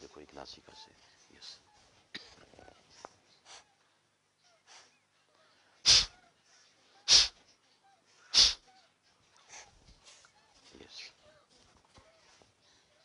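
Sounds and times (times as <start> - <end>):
forceful nasal exhalations: 5.8 - 6.1, 7.1 - 7.4, 8.3 - 8.6.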